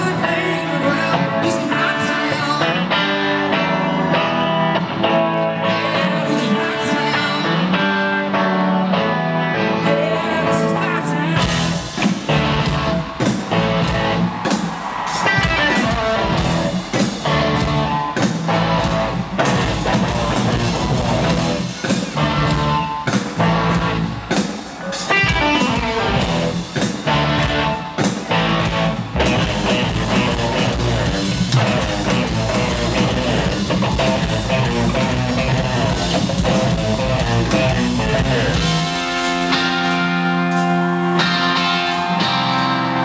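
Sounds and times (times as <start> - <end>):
electric guitars: 0.0 - 43.0
driving drum kit beat: 11.4 - 43.0.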